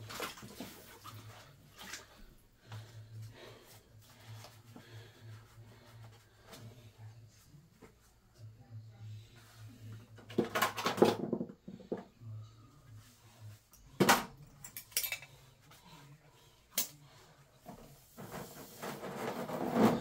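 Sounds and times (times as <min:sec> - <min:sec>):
knocks and light clatters: 0:10.2 - 0:12.2.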